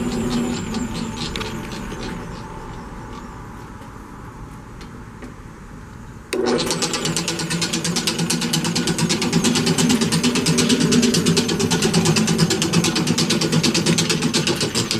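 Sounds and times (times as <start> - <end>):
mixer motor humming and clattering: 0.0 - 3.2, 6.3 - 14.9.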